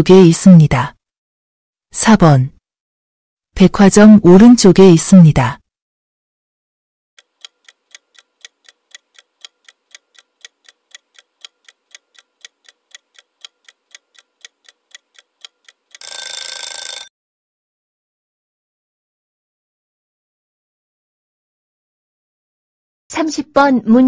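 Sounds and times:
clock ticking: 7.2s - 17.1s
alarm ringing: 16.0s - 17.1s.

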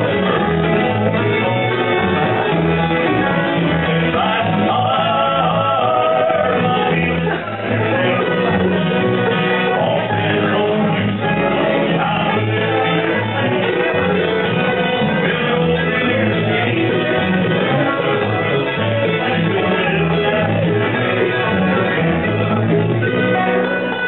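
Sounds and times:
banjo: 0.0s - 24.0s
bluegrass band playing: 0.0s - 24.0s.

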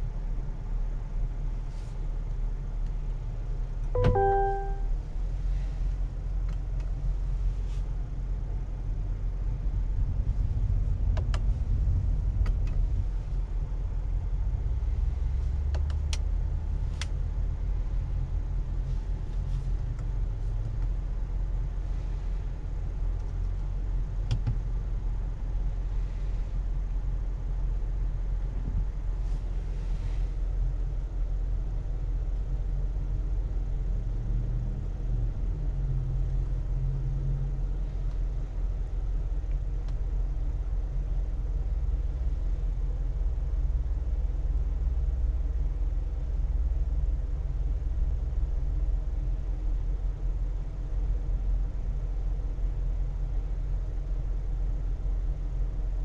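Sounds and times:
car engine idling: 0.0s - 33.9s
control buttons clicking: 4.0s - 4.8s.

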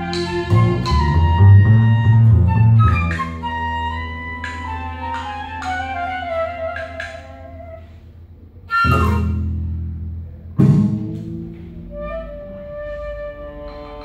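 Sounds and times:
violin: 0.0s - 7.9s
flute: 0.0s - 9.7s, 11.8s - 14.0s
double bass: 0.0s - 14.0s
loud deep hits: 10.6s - 11.8s.

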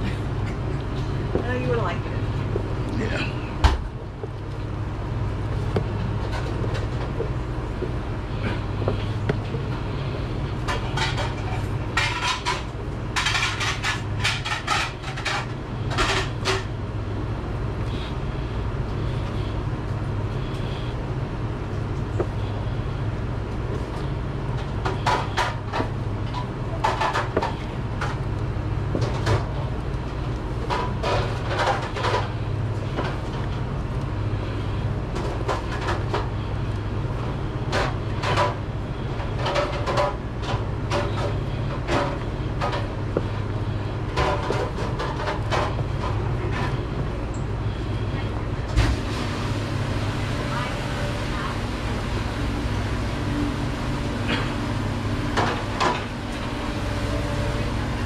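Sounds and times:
steady low hum: 0.0s - 58.0s
dishes and utensils clattering: 10.6s - 16.7s.

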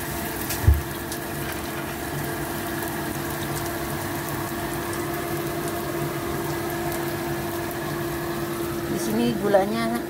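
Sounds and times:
food sizzling in hot oil: 0.0s - 10.0s.

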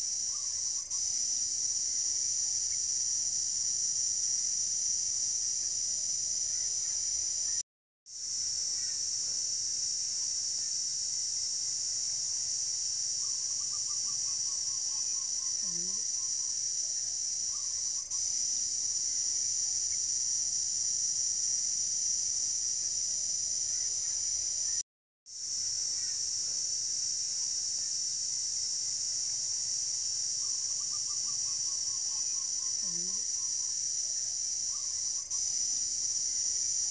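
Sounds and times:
high-pitched insect chorus: 0.0s - 36.9s.

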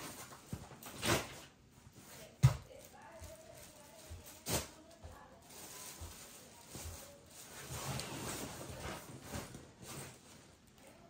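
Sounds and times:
rustling and shuffling: 0.0s - 11.0s.

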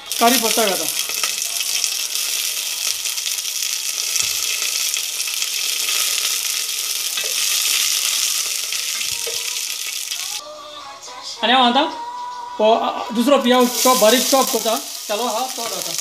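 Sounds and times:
seeds sizzling in hot oil: 0.0s - 10.4s, 13.5s - 16.0s.

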